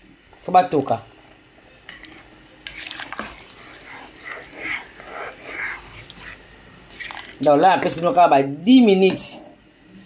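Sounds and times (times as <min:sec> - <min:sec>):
spoon stirring thick sauce: 0:02.0 - 0:07.5.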